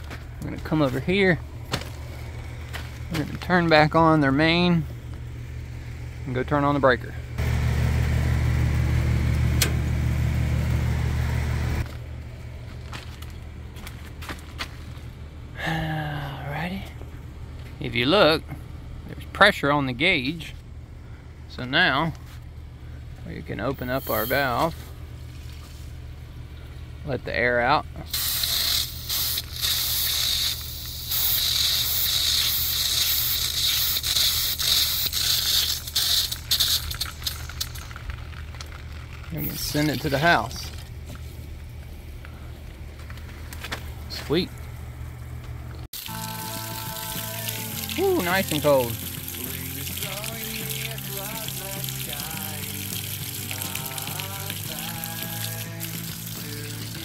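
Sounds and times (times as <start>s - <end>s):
low mechanical hum: 0.0s - 57.0s
circuit breaker click: 9.3s - 10.0s
air hissing from valve: 23.8s - 24.6s, 28.1s - 37.4s.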